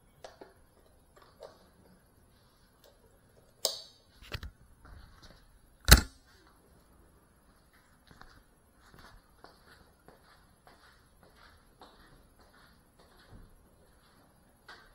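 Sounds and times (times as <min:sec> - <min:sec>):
sharp clicks and knocks: 0:05.8 - 0:06.2.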